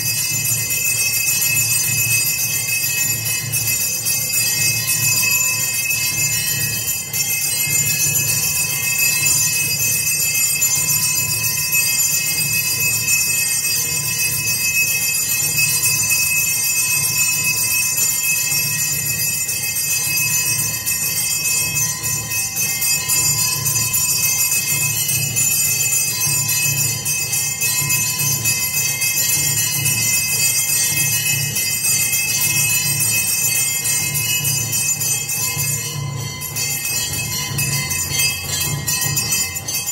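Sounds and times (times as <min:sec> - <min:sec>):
temple bells ringing: 0:00.0 - 0:39.9.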